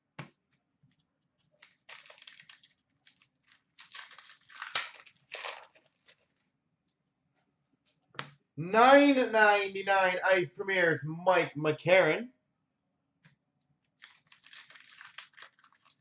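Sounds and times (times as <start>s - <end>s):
wrapper crinkling: 1.6s - 6.5s, 14.0s - 16.0s.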